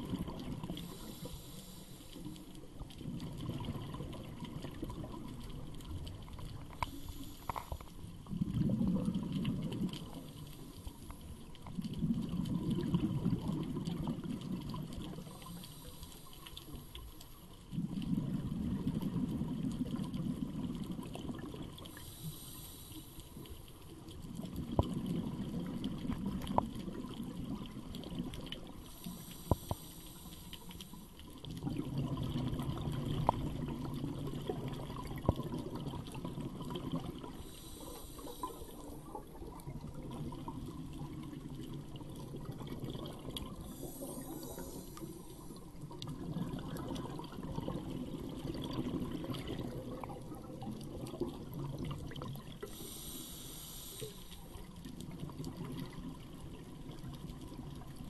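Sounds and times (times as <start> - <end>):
bubbling exhale: 0.0 - 2.4, 17.7 - 23.5, 24.6 - 56.2
hissing regulator inhale: 0.7 - 2.6, 6.7 - 8.0, 15.3 - 17.4, 21.9 - 23.7, 28.8 - 31.3, 37.3 - 39.1, 43.6 - 45.8, 52.6 - 54.7.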